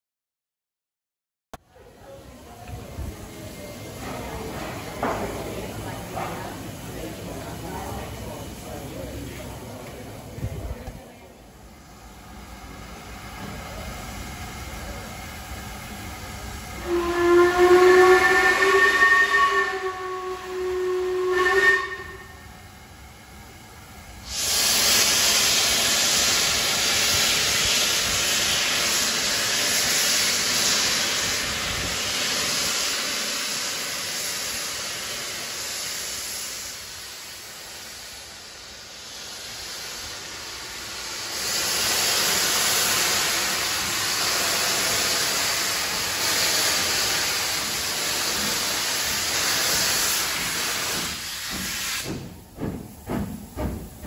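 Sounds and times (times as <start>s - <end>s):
steam hissing: 1.8s - 54.0s
steam locomotive whistle: 16.8s - 22.6s.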